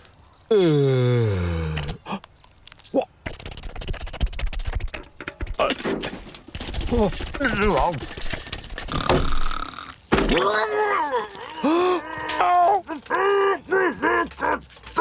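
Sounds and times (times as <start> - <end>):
cartoon character cries and wails: 10.4 - 14.6.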